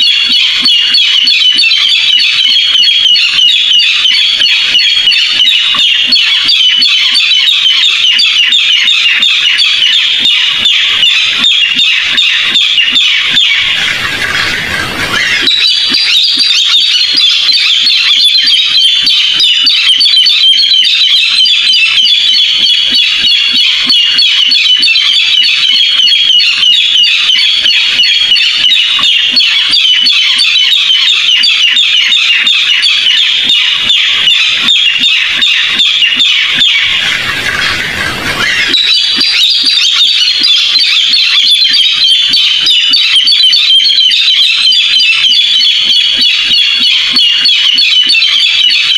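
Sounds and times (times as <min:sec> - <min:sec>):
bird harsh squawking calls: 0:00.0 - 0:48.9.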